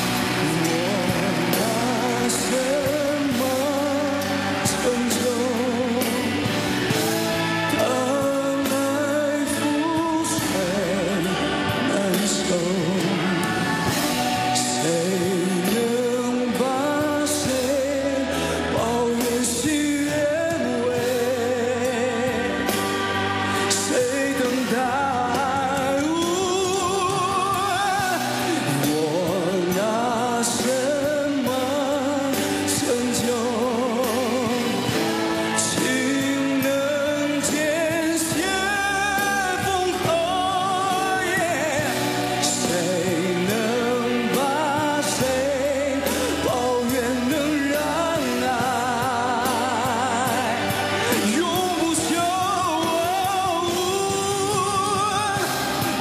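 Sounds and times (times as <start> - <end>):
instrumental backing: 0.0 - 56.0
man singing a pop ballad: 0.0 - 56.0.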